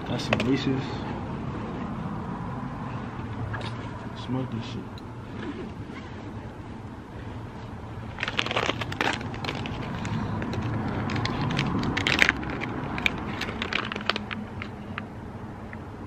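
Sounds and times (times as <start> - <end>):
packaging crinkling: 8.1 - 15.1.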